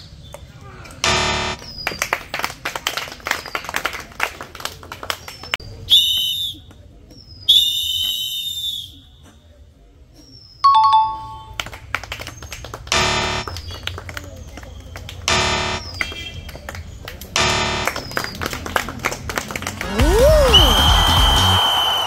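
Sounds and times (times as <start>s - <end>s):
bright electronic chimes: 10.7s - 11.6s
two-note ding: 10.7s - 11.6s.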